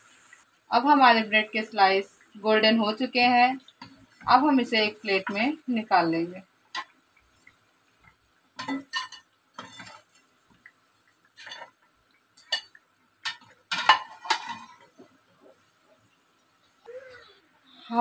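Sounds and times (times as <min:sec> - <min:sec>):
metal spoon clattering on a pan: 0:08.6 - 0:10.0, 0:12.4 - 0:14.8.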